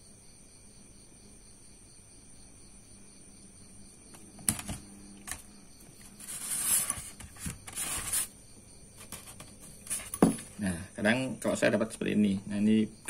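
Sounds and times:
scraping rustle: 5.3 - 8.4, 9.0 - 10.6.

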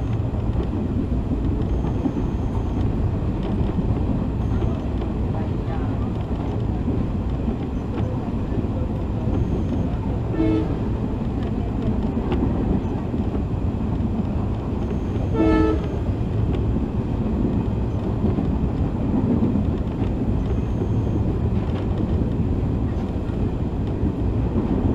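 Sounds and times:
moving train coach rumbling: 0.0 - 24.9
locomotive horn blasts: 10.3 - 10.9, 15.3 - 16.0.

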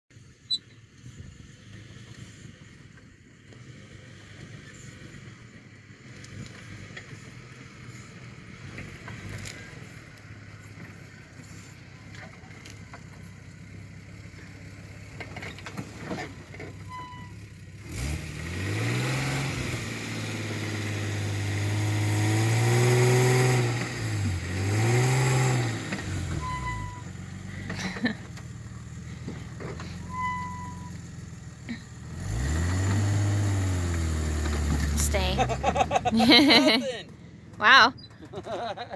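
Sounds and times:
pickup truck engine revving: 17.7 - 31.0, 31.6 - 37.2.

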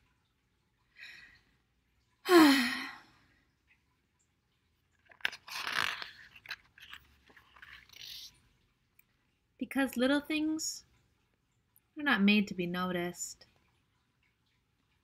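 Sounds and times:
book page turning: 5.0 - 8.3.

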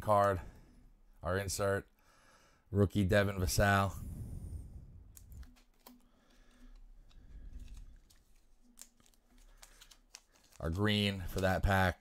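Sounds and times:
trading cards being shuffled: 5.1 - 12.0.

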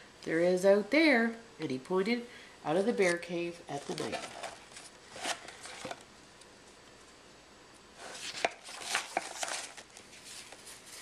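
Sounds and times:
paper rustling page turning: 3.8 - 6.0, 8.0 - 11.0.

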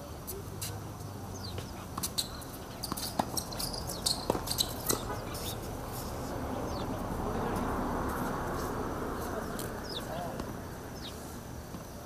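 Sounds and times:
small birds chirping: 1.1 - 7.6, 9.2 - 12.0
tennis ball struck by racket: 2.8 - 5.5.

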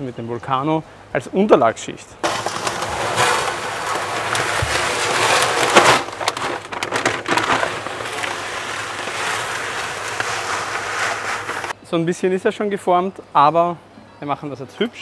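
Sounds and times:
gravel pouring into aquarium: 2.2 - 11.8.

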